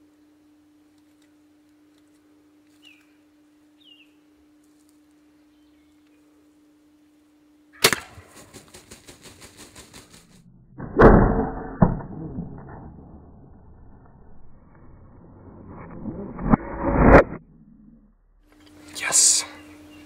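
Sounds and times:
sharp crack: 0:07.8 - 0:08.6, 0:10.0 - 0:17.4
rapid wing flutters: 0:08.0 - 0:10.5
turkey scuffling with decoys: 0:08.2 - 0:10.4.

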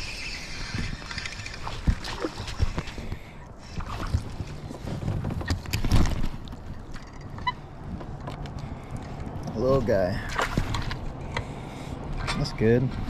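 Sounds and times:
fish splashing: 0:00.0 - 0:04.8
knocks and rattles on a kayak: 0:00.7 - 0:09.6, 0:10.2 - 0:11.2.

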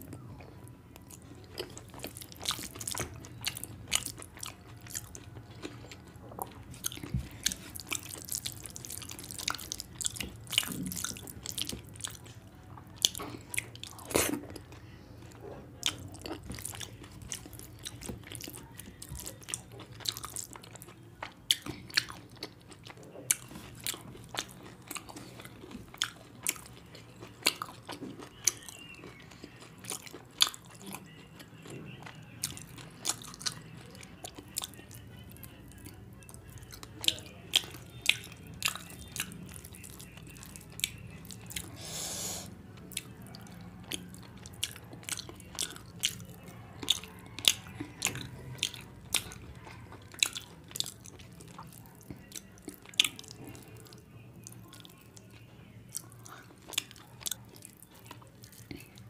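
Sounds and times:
person chewing food: 0:00.0 - 0:59.0
hissing breath or slurp: 0:41.8 - 0:42.5.

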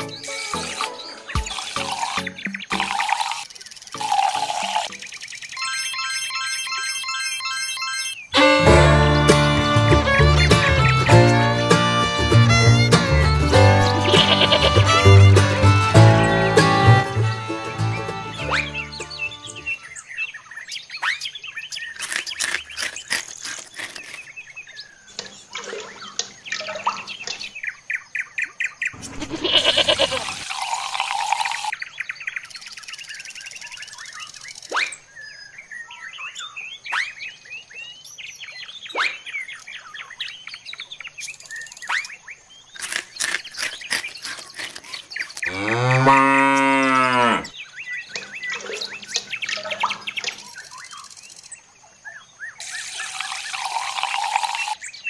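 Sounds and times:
birds chirping: 0:00.0 - 0:06.4, 0:13.4 - 0:55.0
cow mooing: 0:29.1 - 0:30.2, 0:45.5 - 0:47.5.

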